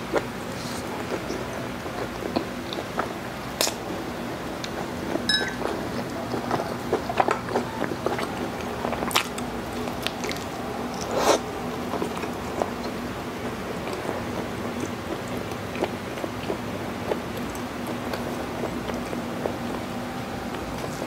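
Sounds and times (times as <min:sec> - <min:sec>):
chewing with wet mouth clicks: 0:01.0 - 0:03.8, 0:05.6 - 0:13.1, 0:13.7 - 0:19.8.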